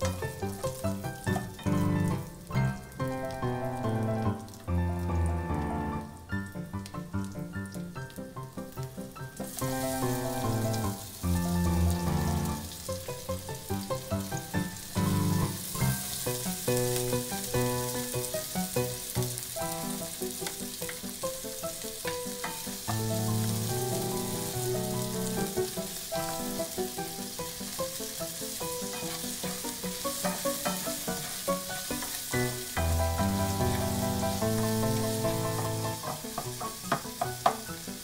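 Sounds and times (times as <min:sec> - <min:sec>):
spatula stirring in pan: 0:00.0 - 0:03.0, 0:15.0 - 0:38.0
background music: 0:00.0 - 0:38.0
onions sizzling in oil: 0:00.0 - 0:38.0.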